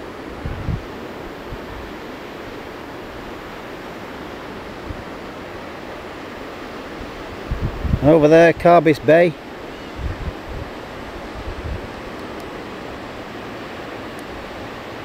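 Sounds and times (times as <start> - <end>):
wind noise on microphone: 0.0 - 2.0, 7.0 - 9.1, 9.7 - 15.0.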